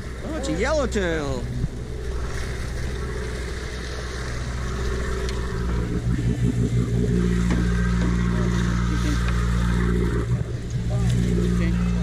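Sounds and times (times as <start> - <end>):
boat engines running: 0.0 - 12.0
water washing along hull: 0.0 - 12.0.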